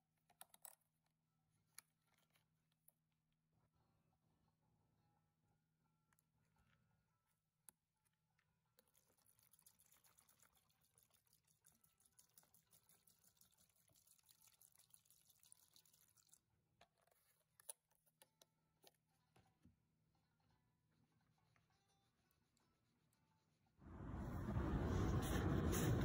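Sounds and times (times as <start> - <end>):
liquid fizzing and crackling: 8.8 - 16.6
liquid pouring into plastic tub: 9.0 - 16.6.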